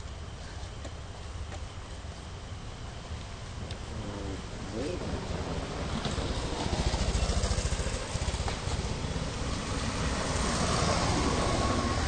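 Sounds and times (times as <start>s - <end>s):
thin steady whine: 0.0s - 12.0s
motorcycle engine running: 6.5s - 8.9s.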